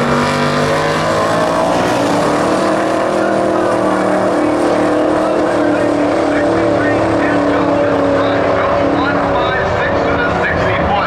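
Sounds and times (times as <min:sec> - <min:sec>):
race car engines at full throttle: 0:00.0 - 0:11.0.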